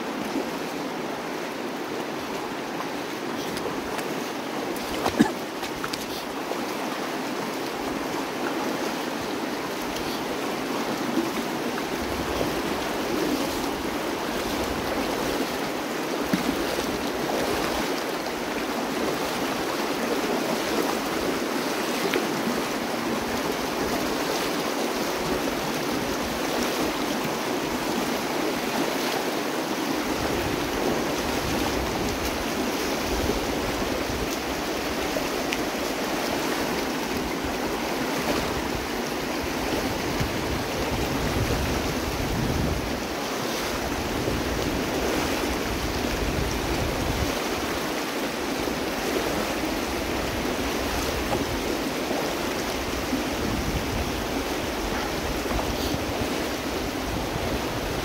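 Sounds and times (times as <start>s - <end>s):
river rushing over rocks: 0.0s - 58.0s.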